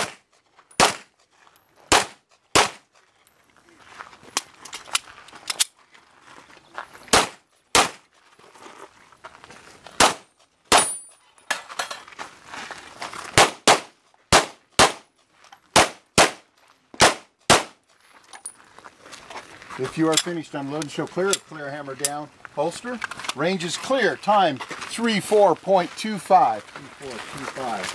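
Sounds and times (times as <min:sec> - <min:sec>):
pistol shots: 0:00.8 - 0:01.1, 0:01.9 - 0:02.8, 0:07.1 - 0:08.0, 0:10.0 - 0:11.0, 0:13.4 - 0:15.0, 0:15.7 - 0:16.4, 0:17.0 - 0:17.8.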